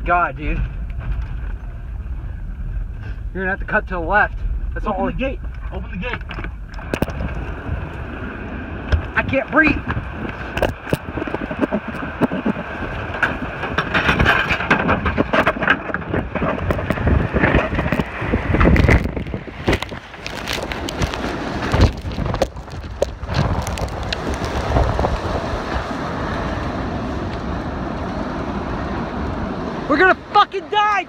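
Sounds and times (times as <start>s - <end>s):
car engine and road rumble: 0.0s - 31.0s
sharp knocks and crackles: 0.5s - 2.0s, 4.3s - 8.1s, 8.8s - 26.5s.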